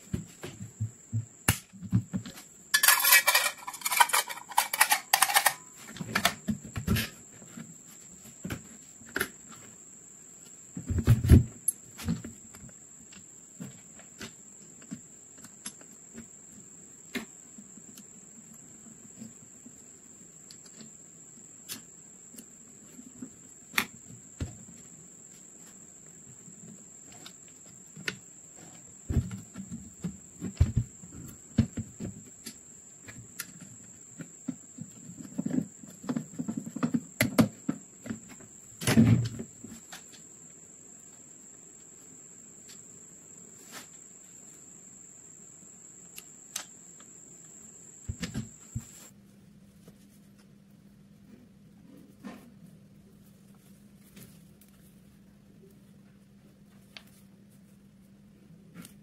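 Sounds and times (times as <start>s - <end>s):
screwdriver clicking on metal: 2.8s - 5.6s.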